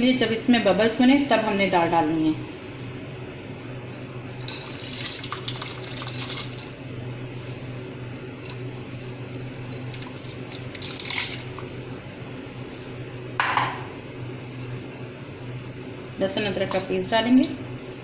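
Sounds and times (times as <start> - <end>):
lentils splashing into water: 4.4 - 7.0, 10.5 - 11.7.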